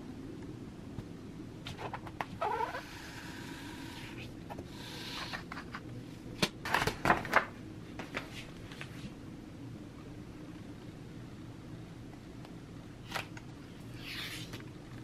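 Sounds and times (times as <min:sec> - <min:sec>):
paper rustling and sliding: 0:14.0 - 0:14.6.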